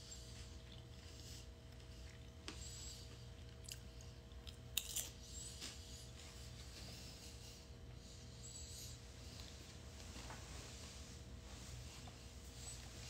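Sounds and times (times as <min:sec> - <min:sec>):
low steady hum: 0:00.0 - 0:13.0
person chewing: 0:00.4 - 0:05.2.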